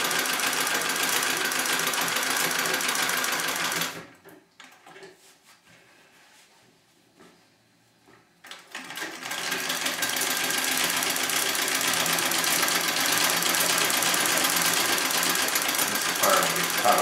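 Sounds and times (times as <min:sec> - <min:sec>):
treadle sewing machine running: 0:00.0 - 0:04.3, 0:08.4 - 0:17.0.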